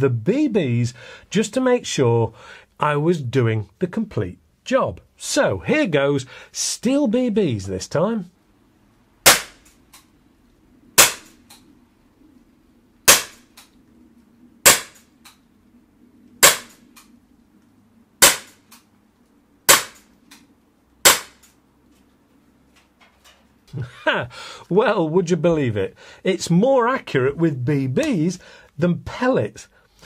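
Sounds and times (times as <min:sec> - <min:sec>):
air pistol cracks: 0:16.4 - 0:17.1.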